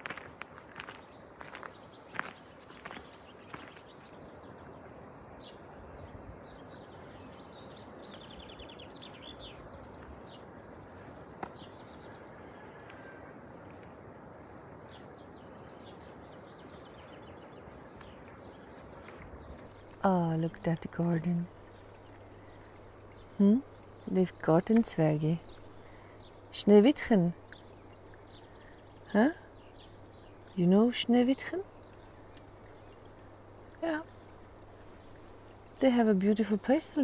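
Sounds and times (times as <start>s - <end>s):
small birds chirping in trills: 0.6s - 37.0s
background hiss: 13.9s - 37.0s.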